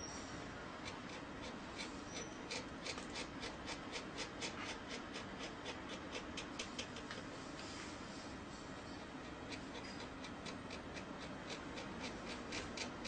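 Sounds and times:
pen nib scratching on paper: 0.8s - 7.2s, 9.0s - 13.0s.

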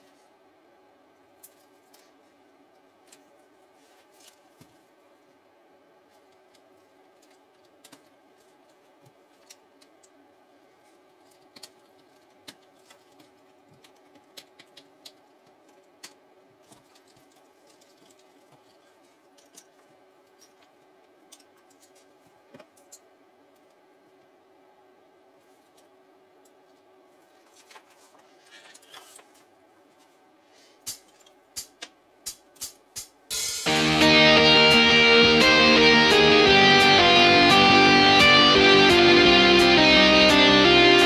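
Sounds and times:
faint steady hum: 0.0s - 32.3s.

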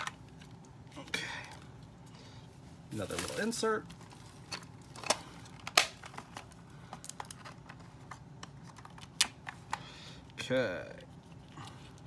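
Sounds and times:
toy packaging crinkling and clicking: 3.0s - 10.4s.

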